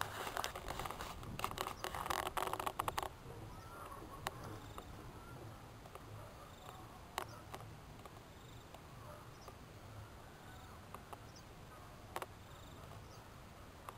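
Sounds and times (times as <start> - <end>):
sharp clicks: 0.0 - 3.2, 5.8 - 8.8
low steady hiss: 0.0 - 13.9.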